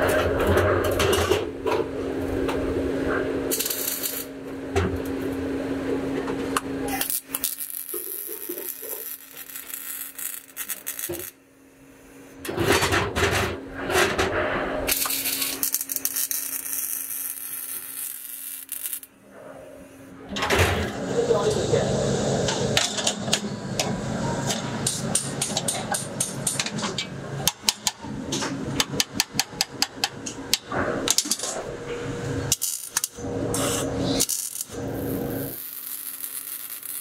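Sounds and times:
steady hum: 0:00.0 - 0:36.2
welding arc crackling: 0:03.5 - 0:04.5, 0:06.9 - 0:11.4, 0:14.9 - 0:19.2, 0:20.9 - 0:37.0.

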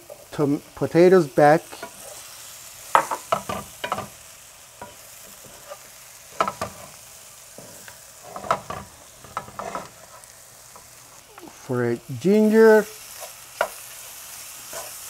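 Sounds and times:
potatoes and onions sizzling in oil: 0:00.0 - 0:15.0
wooden spatula scraping a pan: 0:04.8 - 0:07.0, 0:07.6 - 0:10.9, 0:13.0 - 0:13.8, 0:14.6 - 0:15.0.

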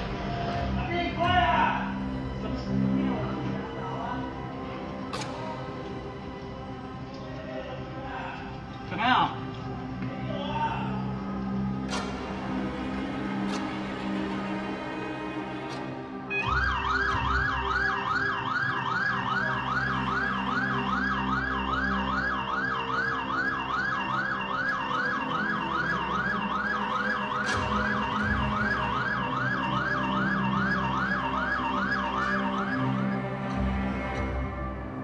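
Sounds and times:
steady low drone: 0:00.0 - 0:35.0
siren yelping: 0:16.3 - 0:33.6.

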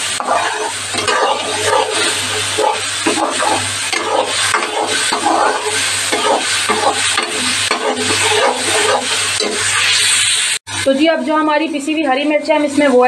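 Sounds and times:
metal spoon scraping a pan: 0:00.0 - 0:10.4
paste sizzling in hot oil: 0:00.0 - 0:10.9.

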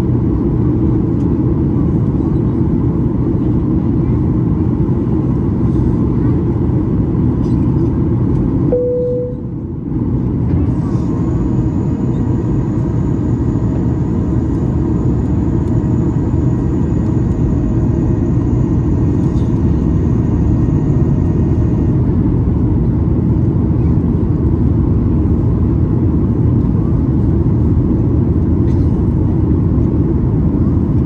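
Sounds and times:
airliner cabin rumble: 0:00.0 - 0:31.0
short tone: 0:08.7 - 0:09.6.

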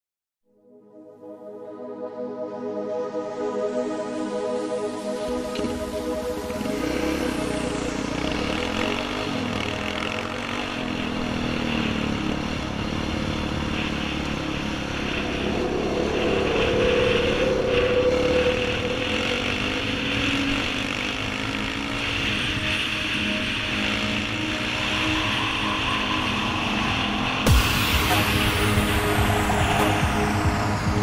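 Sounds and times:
quad bike engine revving: 0:06.6 - 0:15.4, 0:16.0 - 0:27.5.

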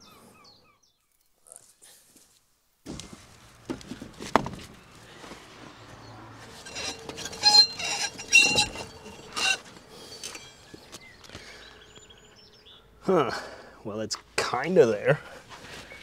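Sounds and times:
ringing metal clanks: 0:06.5 - 0:12.4.

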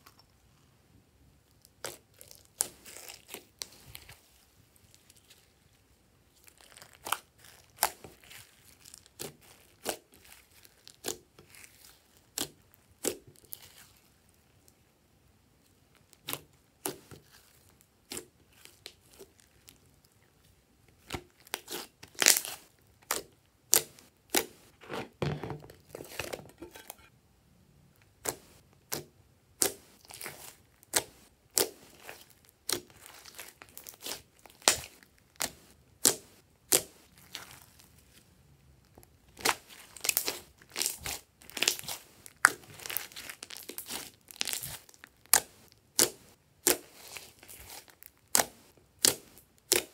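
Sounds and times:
slime popping and crackling: 0:39.3 - 0:49.9.

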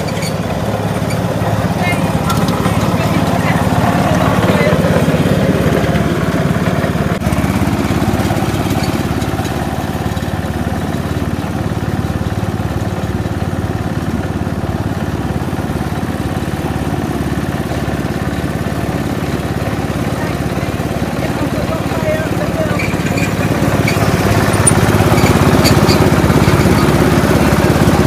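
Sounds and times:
ride-on lawn mower engine: 0:00.0 - 0:28.0.

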